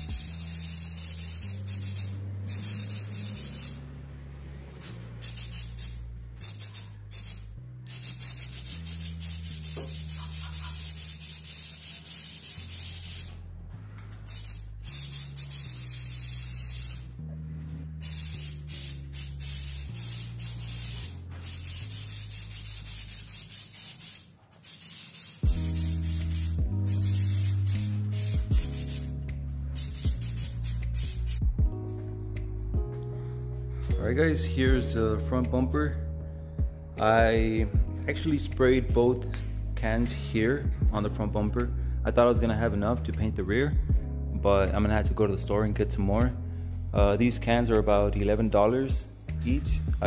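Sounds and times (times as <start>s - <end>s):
aerosol can spraying hiss: 0.0s - 3.8s, 5.2s - 13.4s, 14.1s - 17.1s, 18.0s - 31.5s
background music with bass line: 0.0s - 23.4s, 25.4s - 50.0s.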